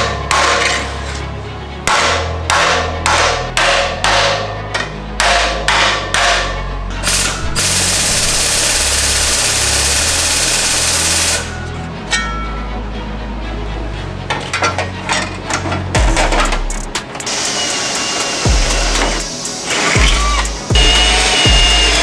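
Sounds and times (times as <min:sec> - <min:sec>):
hammer striking steel: 0:00.0 - 0:01.1, 0:01.8 - 0:12.7
background music with bass: 0:00.0 - 0:22.0.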